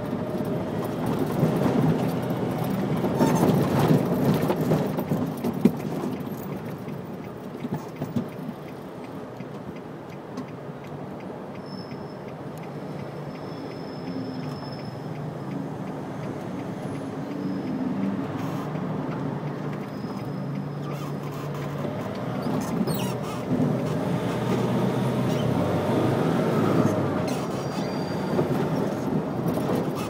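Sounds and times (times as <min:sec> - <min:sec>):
road noise: 0:00.0 - 0:30.0
car engine from inside cabin: 0:14.5 - 0:30.0.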